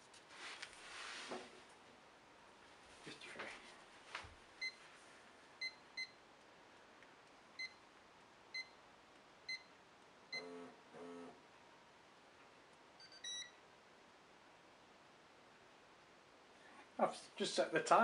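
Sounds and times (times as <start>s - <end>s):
short high beeps: 13.0s - 13.5s.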